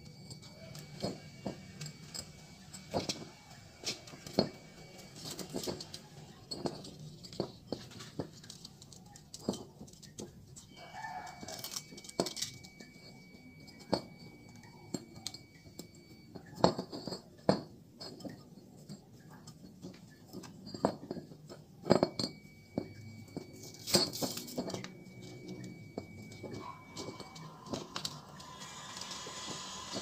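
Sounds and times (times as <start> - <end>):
metal clicks and clinks: 0.0 - 30.0
faint high whine: 22.1 - 30.0.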